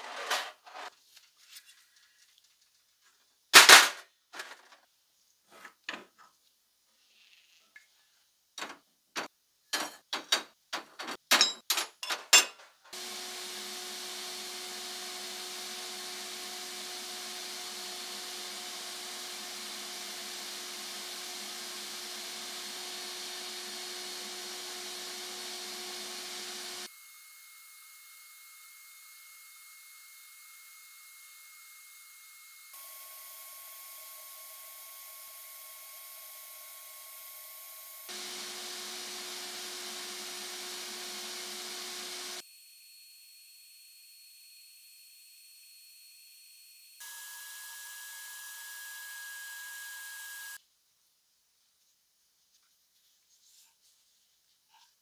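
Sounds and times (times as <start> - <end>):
metal parts knocking and clattering: 9.7 - 12.9
sandblast gun hissing: 13.0 - 26.9, 37.9 - 42.4.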